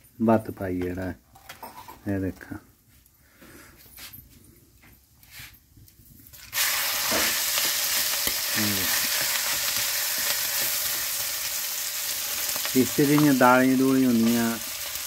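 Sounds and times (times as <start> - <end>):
rice sizzling in hot oil: 6.3 - 15.0.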